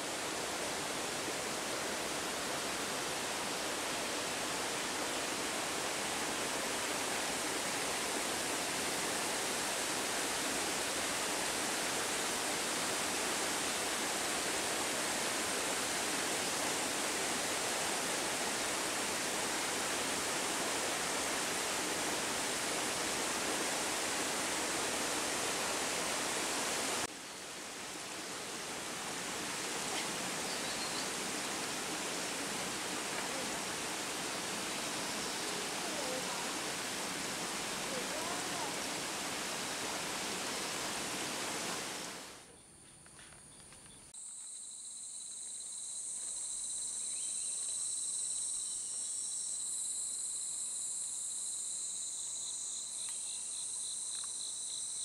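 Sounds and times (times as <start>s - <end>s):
waterfall rushing: 0.0s - 42.4s.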